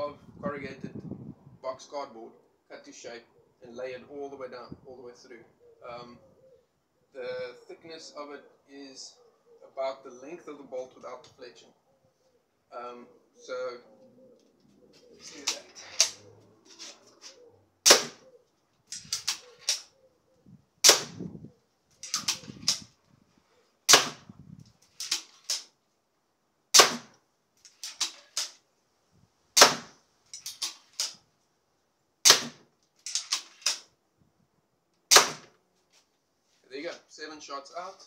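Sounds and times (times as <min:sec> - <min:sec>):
crossbow cocking clacks: 0:15.1 - 0:18.3, 0:18.9 - 0:20.0, 0:22.0 - 0:22.9, 0:24.9 - 0:25.7, 0:27.6 - 0:28.6, 0:30.3 - 0:31.2, 0:33.0 - 0:33.9
crossbow firing sharp snap: 0:17.9 - 0:18.2, 0:20.8 - 0:21.2, 0:22.0 - 0:22.9, 0:23.9 - 0:24.3, 0:26.8 - 0:27.1, 0:29.6 - 0:29.9, 0:32.3 - 0:32.6, 0:35.1 - 0:35.5.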